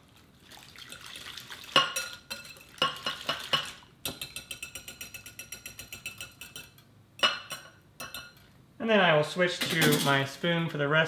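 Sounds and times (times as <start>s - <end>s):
whisk clinking against glass bowl: 1.8s - 8.4s.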